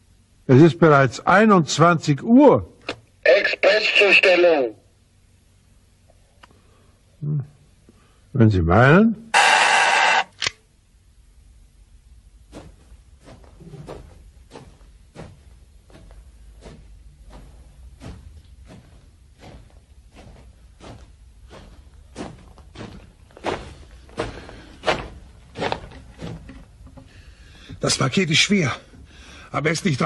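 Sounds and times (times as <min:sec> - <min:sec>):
footsteps walking: 0:12.4 - 0:29.4.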